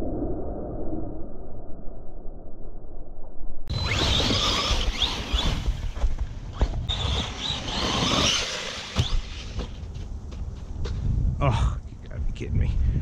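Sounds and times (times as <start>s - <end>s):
rc truck motor whine: 3.7s - 9.8s.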